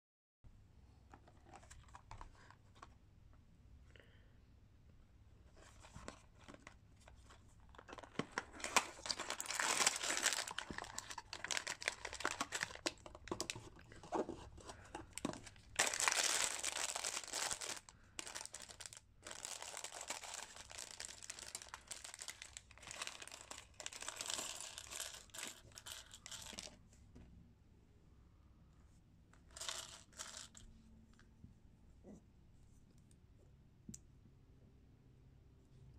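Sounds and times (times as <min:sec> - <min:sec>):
plastic bags crinkling: 0:07.6 - 0:26.7.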